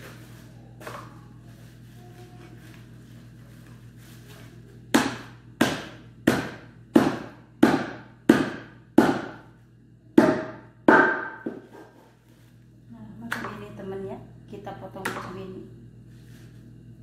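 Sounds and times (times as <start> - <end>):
knife chopping meat: 4.9 - 9.4.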